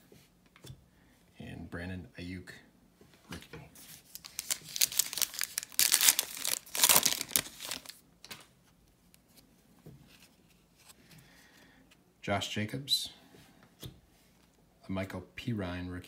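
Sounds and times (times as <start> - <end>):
foil wrapper tearing and crinkling: 4.0 - 8.0.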